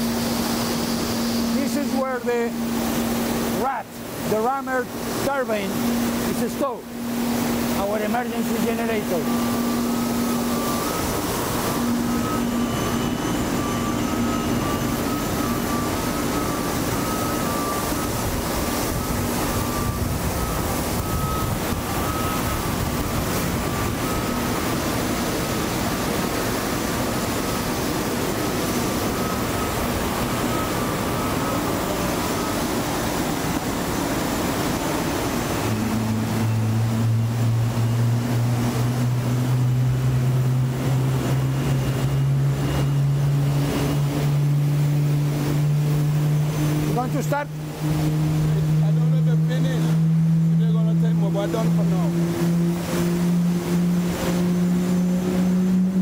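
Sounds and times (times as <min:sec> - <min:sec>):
deep engine drone: 0:00.0 - 0:56.0
refuelling machinery rushing: 0:00.0 - 0:56.0
steady machinery hum: 0:00.0 - 0:56.0.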